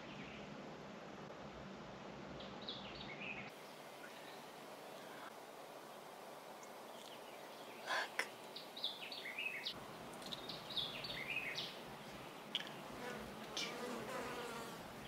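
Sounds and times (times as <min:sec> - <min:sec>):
faint outdoor hiss: 0:00.0 - 0:15.0
birds singing: 0:06.9 - 0:14.7.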